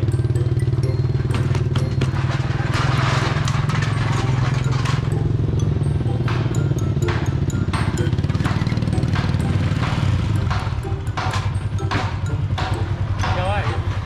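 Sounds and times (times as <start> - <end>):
engine droning: 0.0 - 14.0.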